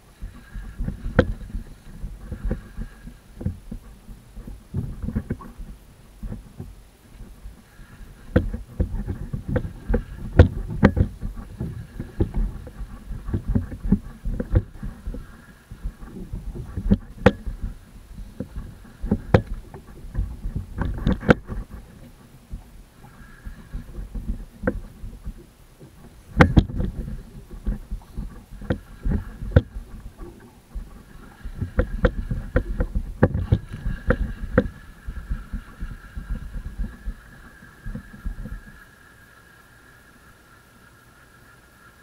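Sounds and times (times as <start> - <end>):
water lapping against kayak hull: 0.0 - 42.0
knocks and splashes: 23.4 - 38.7.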